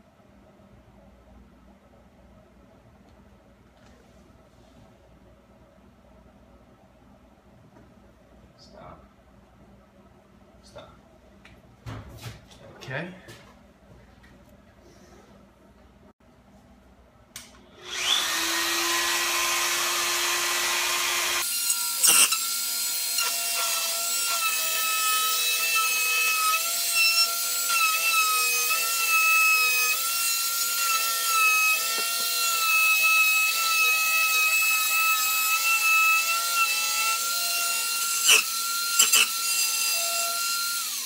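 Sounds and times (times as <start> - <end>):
rotary cutting tool whining: 17.8 - 41.0.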